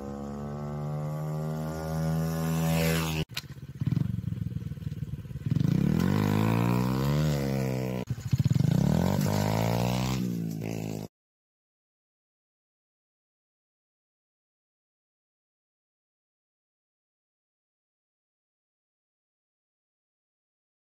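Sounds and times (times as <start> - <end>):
dirt bike engine revving: 0.0 - 11.1.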